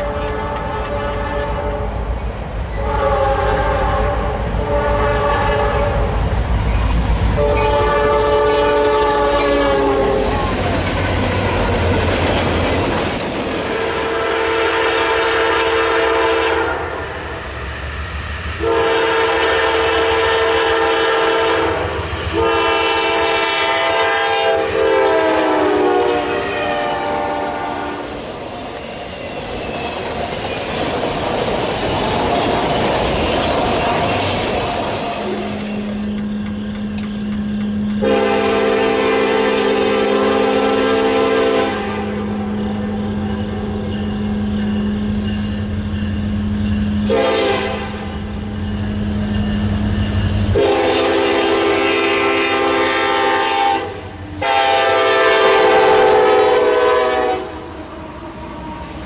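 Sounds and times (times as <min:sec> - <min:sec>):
locomotive horn blasts: 0:00.0 - 0:01.9, 0:02.8 - 0:06.1, 0:07.4 - 0:10.5, 0:13.7 - 0:17.1, 0:18.6 - 0:28.2, 0:37.7 - 0:44.5, 0:47.0 - 0:48.3, 0:50.5 - 0:57.7
freight cars rumbling: 0:00.0 - 0:14.2, 0:28.0 - 0:39.1
train wheels clacking over rail joints: 0:28.2 - 0:38.2.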